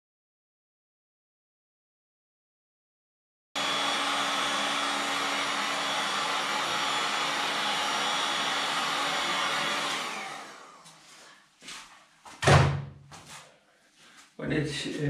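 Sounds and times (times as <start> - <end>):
fan winding down whine: 3.6 - 11.1
heat gun blowing: 3.6 - 11.2.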